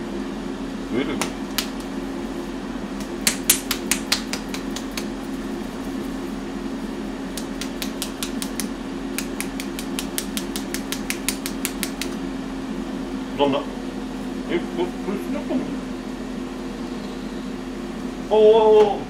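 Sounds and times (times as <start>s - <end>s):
appliance hum: 0.0s - 19.0s
salt shaker clicking: 3.3s - 5.1s, 7.3s - 12.2s.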